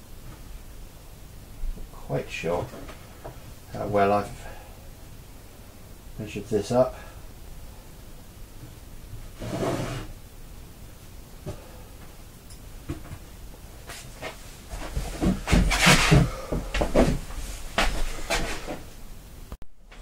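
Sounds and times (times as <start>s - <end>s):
rustle on a workbench: 9.2s - 10.1s, 12.9s - 19.0s
knocks and rubbing: 12.9s - 18.8s.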